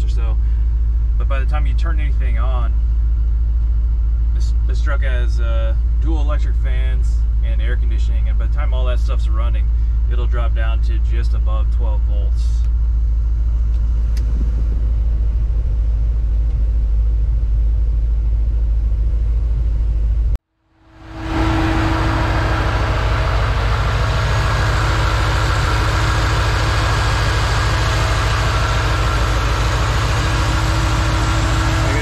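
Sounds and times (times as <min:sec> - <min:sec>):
truck engine idling: 0:00.0 - 0:32.0
radiator fans rushing air: 0:20.9 - 0:32.0.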